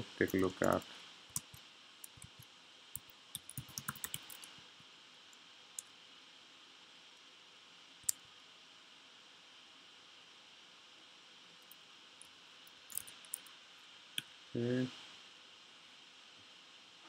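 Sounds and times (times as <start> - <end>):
keyboard typing: 0.3 - 2.4, 3.0 - 4.5, 12.9 - 13.5.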